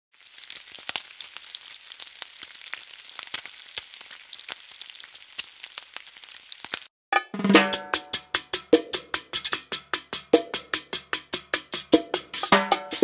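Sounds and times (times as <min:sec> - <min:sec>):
food sizzling in hot oil: 0:00.1 - 0:06.9.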